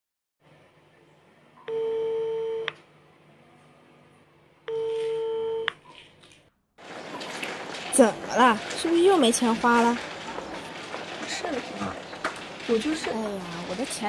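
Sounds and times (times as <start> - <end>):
telephone ringback beeps: 1.6 - 2.7, 4.7 - 5.8.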